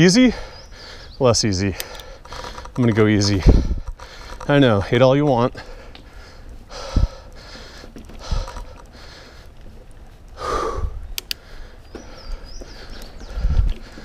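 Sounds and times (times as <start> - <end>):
person breathing hard: 0.3 - 1.2, 3.4 - 4.5, 5.6 - 9.7, 10.3 - 14.0
sharp ticks: 1.6 - 9.6, 11.1 - 12.1.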